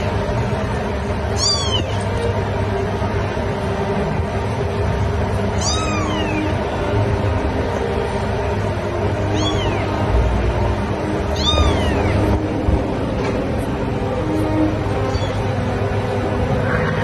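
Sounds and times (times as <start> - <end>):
steady background hum: 0.0 - 17.0
kitten mewing: 1.4 - 2.0, 5.6 - 6.6, 9.3 - 9.9, 11.3 - 12.3, 15.1 - 15.5.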